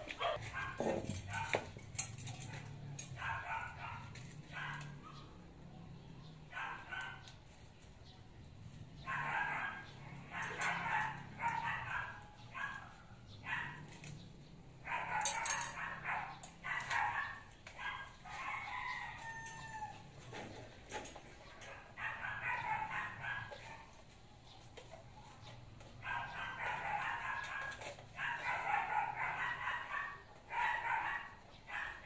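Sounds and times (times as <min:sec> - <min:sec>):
dogs barking: 0:00.0 - 0:32.0.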